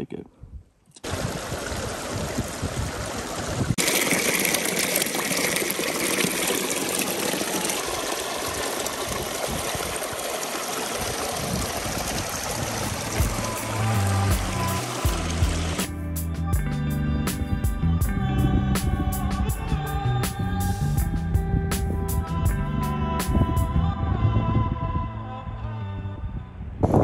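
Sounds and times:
stream splashing over rocks: 0:01.0 - 0:15.9.

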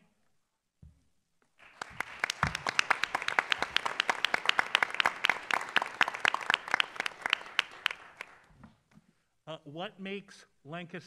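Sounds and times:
audience applause: 0:01.6 - 0:08.5
sharp individual claps: 0:01.6 - 0:08.5.

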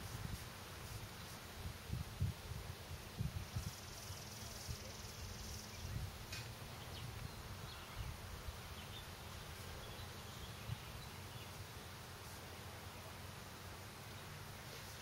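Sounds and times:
high insect hum: 0:00.0 - 0:15.0
low wind rumble on microphone: 0:01.5 - 0:09.1.

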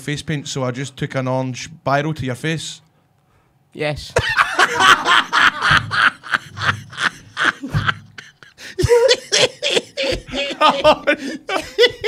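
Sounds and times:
men laughing: 0:04.2 - 0:12.0.

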